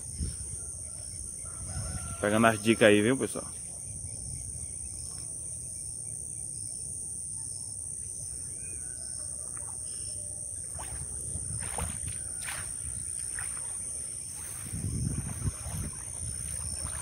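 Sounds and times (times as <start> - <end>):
wind rumbling on microphone: 0.0 - 2.3, 10.6 - 17.0
water splashes and drips: 10.6 - 17.0.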